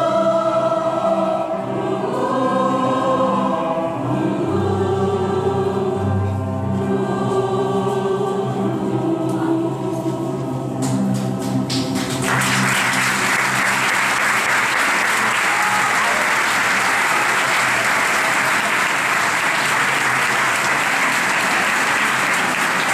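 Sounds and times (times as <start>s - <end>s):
choir holding final chord: 0.0s - 22.9s
audience applauding: 11.4s - 22.9s.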